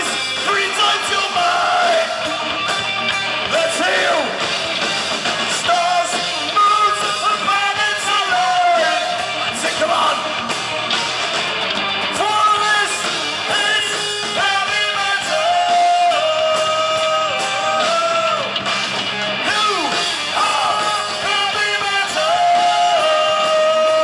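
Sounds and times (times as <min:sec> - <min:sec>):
man singing: 0:00.0 - 0:02.3, 0:03.5 - 0:04.4, 0:05.5 - 0:10.4, 0:12.2 - 0:18.5, 0:19.4 - 0:24.0
heavy metal band playing: 0:00.0 - 0:24.0.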